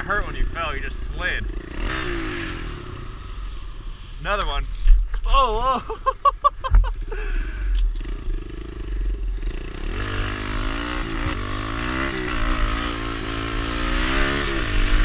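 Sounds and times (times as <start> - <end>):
small motorbike engine revving: 1.4 - 3.9, 7.4 - 15.0.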